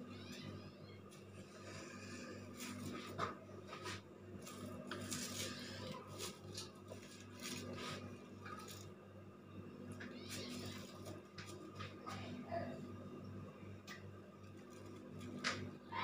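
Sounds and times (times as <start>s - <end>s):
steady low hum: 0.0s - 16.0s
knife scraping and crinkling: 2.6s - 9.0s.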